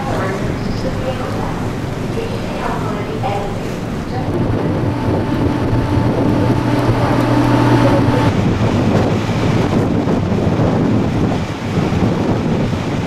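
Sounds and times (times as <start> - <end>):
ferry engines humming: 0.0 - 8.6
wind buffeting microphone: 0.0 - 13.0
held tones: 4.2 - 8.4.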